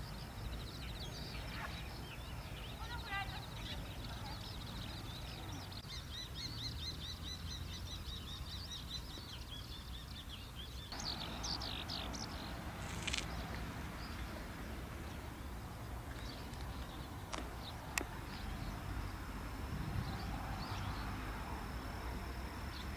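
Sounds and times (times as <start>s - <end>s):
small bird chirping: 0.0s - 14.4s.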